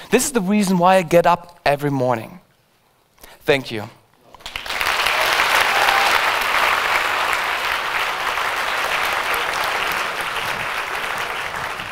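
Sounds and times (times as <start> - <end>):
audience applauding: 4.4 - 11.9.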